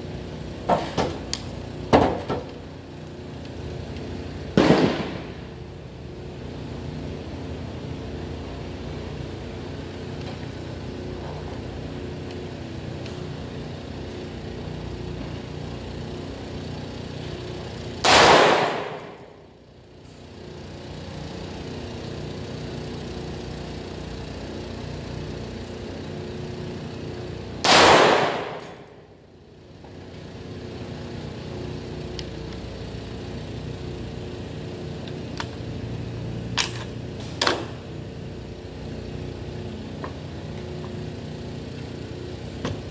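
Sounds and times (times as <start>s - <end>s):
steady background hum: 0.0s - 42.9s
rifle shots: 4.6s - 5.3s, 18.0s - 19.1s, 27.6s - 28.8s.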